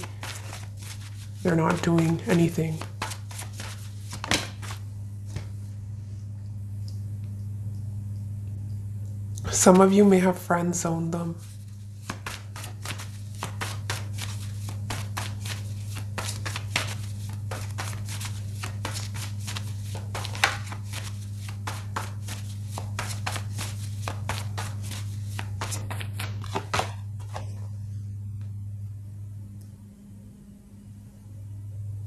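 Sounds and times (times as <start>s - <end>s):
cards being shuffled: 0.0s - 5.5s, 11.4s - 27.7s
low electrical hum: 0.0s - 32.0s.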